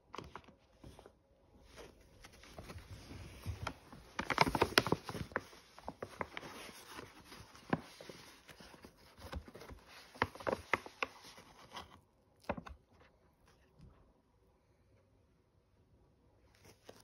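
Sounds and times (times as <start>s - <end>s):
plastic pouch crinkling: 3.6s - 8.2s.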